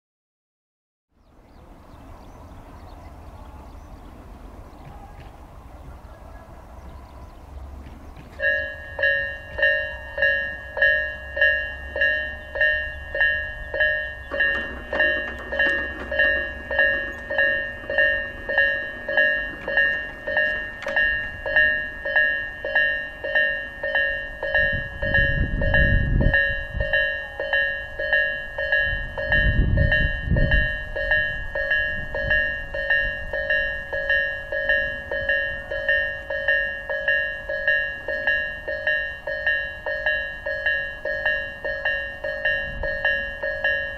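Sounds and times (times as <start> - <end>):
level crossing alarm ringing: 8.4 - 43.9.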